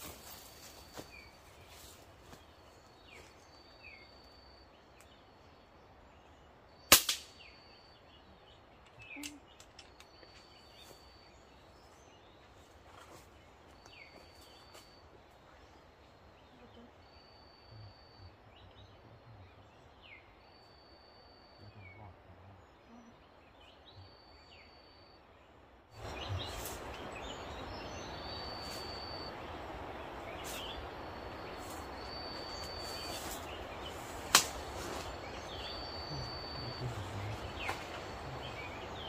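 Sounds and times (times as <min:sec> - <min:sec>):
gunshot crack: 0:06.9 - 0:07.3
bird chirps: 0:26.0 - 0:39.0.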